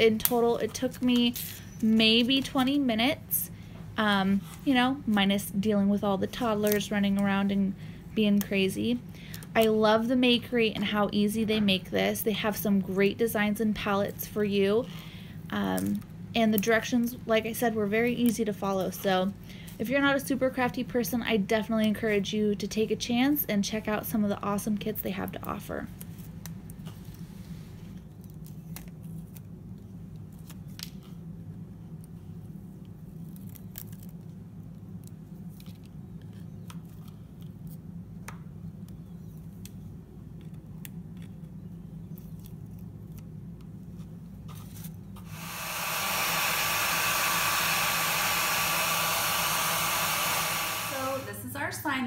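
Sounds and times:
hair dryer blowing: 45.2 - 51.8.

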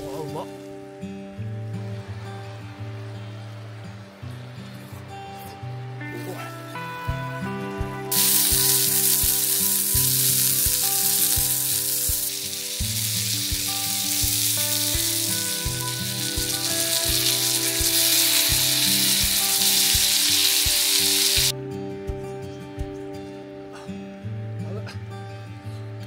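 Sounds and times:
oysters sizzling in frying pan: 8.1 - 21.5.

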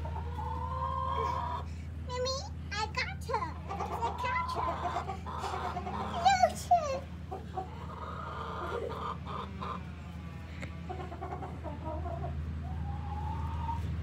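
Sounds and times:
loud wavering hen calls: 0.0 - 1.7, 3.5 - 14.0
hens clucking: 0.0 - 14.0.

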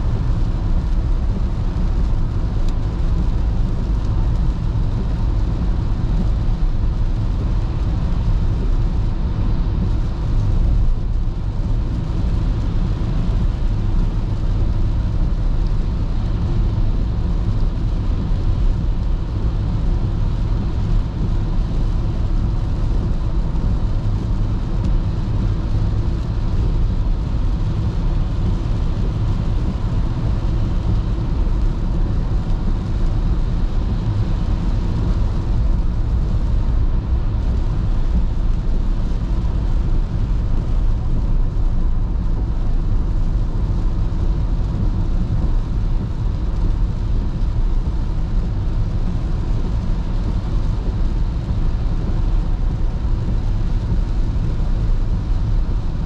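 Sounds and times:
car driving on wet road: 0.0 - 56.0.

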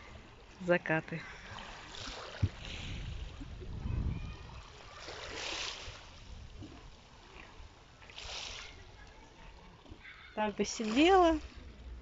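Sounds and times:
small waves lapping on pebbles: 0.0 - 12.0
wind rumble on microphone: 2.0 - 7.8.

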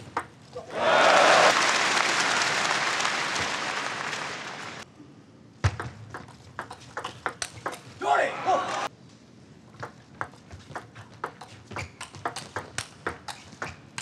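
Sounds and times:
crowd applauding and cheering: 0.7 - 4.8
table tennis ball bouncing: 5.6 - 7.9, 9.8 - 14.0.

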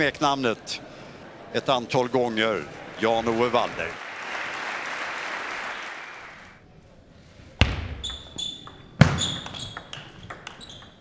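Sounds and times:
applause: 2.8 - 6.6
ball bouncing on table: 7.6 - 11.0
table tennis ball hitting bats: 7.6 - 11.0.

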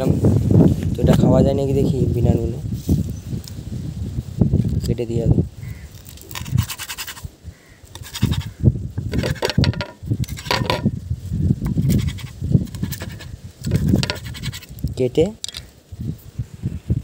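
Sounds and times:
spatula scraping a pan: 8.0 - 10.9, 11.7 - 14.7.

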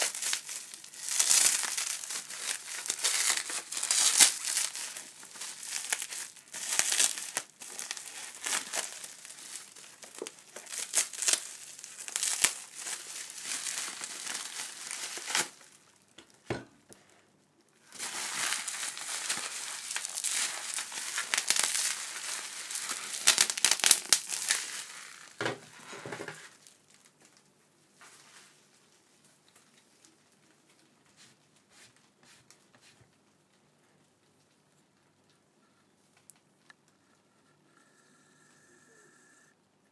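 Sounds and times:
bubble wrap crinkling: 0.0 - 16.4, 17.8 - 31.2.

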